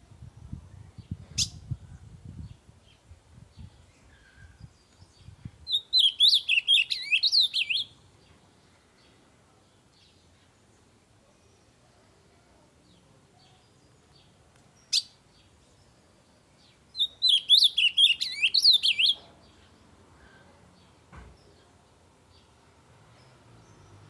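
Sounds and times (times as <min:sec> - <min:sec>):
warbled bird song: 0:00.3 - 0:24.0
sharp bird call: 0:17.0 - 0:19.2.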